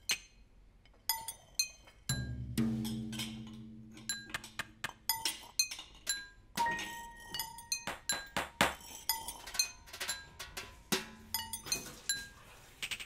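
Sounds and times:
teaspoon clinking on porcelain: 2.9s - 13.0s.

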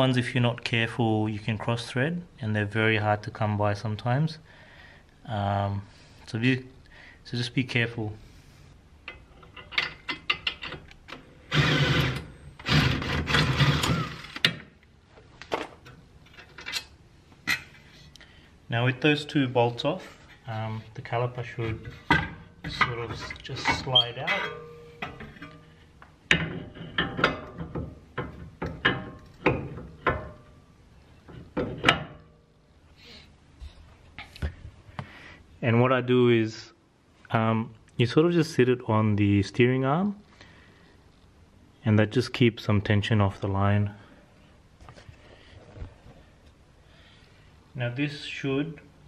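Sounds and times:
impact wrench running: 11.5s - 14.4s
metal clunks and knocks: 21.7s - 25.7s, 26.3s - 30.5s, 31.2s - 32.3s.

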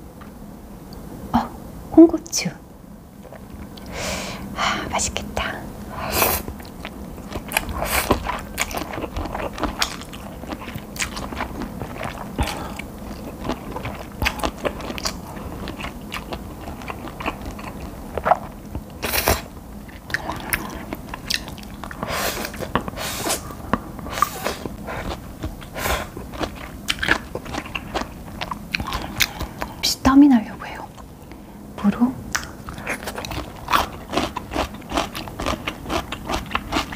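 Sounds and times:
noodles being slurped and chewed: 6.2s - 23.4s, 32.7s - 36.9s.

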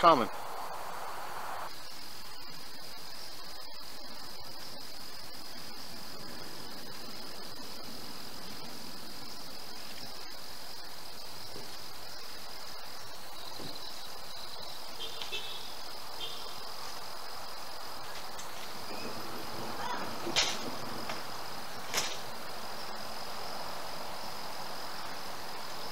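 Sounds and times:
background hiss: 0.0s - 25.9s
crickets chirring: 0.0s - 25.9s.

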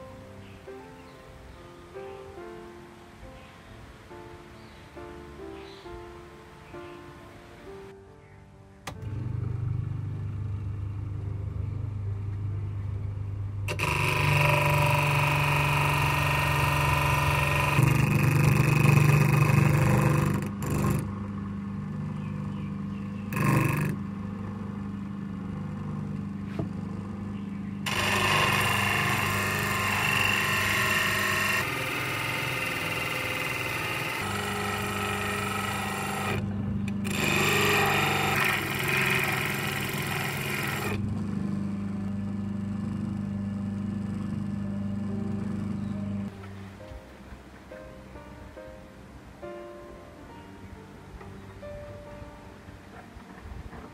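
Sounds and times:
electric motor humming: 8.9s - 46.3s
screwdriver grinding on sanding drum: 13.7s - 21.2s, 23.3s - 24.0s, 27.9s - 41.0s.

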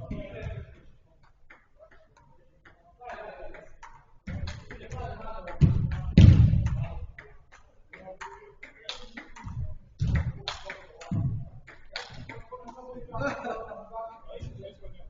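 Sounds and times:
ball kicked thudding: 4.3s - 7.0s, 9.4s - 10.5s, 11.1s - 11.6s
footsteps: 9.4s - 12.4s.

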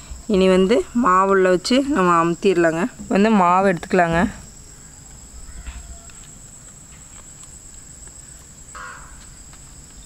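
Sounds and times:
crickets droning: 0.0s - 10.0s
animal call: 4.7s - 6.3s.

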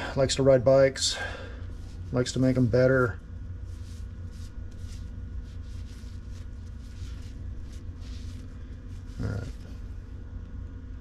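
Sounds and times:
steady low hum: 0.0s - 11.0s
towel rubbing metal gear: 3.6s - 9.8s.

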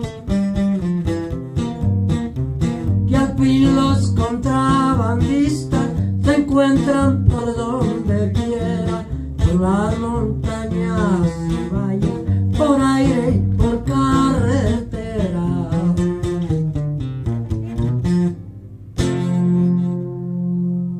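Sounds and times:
twelve-string acoustic guitar: 0.0s - 20.9s
man singing: 3.1s - 16.5s.

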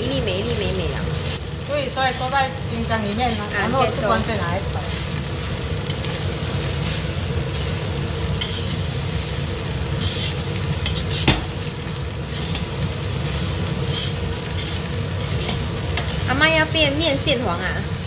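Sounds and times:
steady sizzle: 0.0s - 18.0s
spatula scraping rice in wok: 1.1s - 2.4s, 4.8s - 11.6s, 12.2s - 16.3s.

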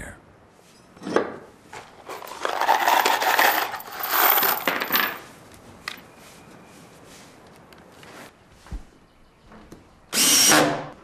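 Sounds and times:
cordless drill driving screw: 10.2s - 10.7s.

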